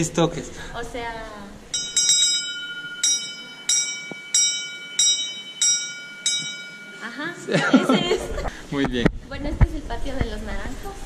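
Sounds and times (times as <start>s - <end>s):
hand bell strokes ringing: 1.7s - 8.5s.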